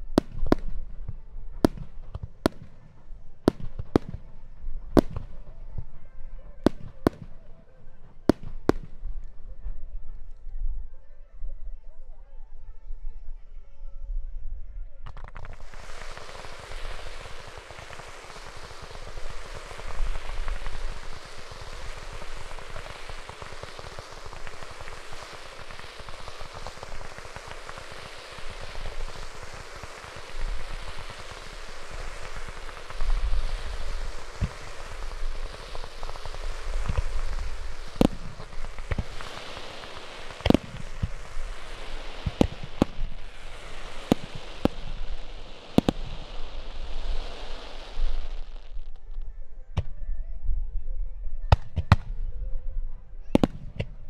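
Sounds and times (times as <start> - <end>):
fireworks crackling hiss: 0.0 - 9.9, 15.1 - 49.9, 53.3 - 54.0
loud firework bangs: 15.2 - 48.7
deep firework booms: 15.5 - 49.0, 53.3 - 54.0.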